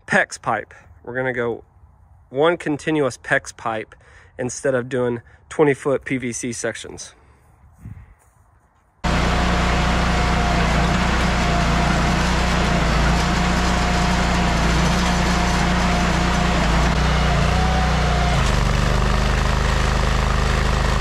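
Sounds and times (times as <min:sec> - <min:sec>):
trencher engine running: 0:09.0 - 0:21.0.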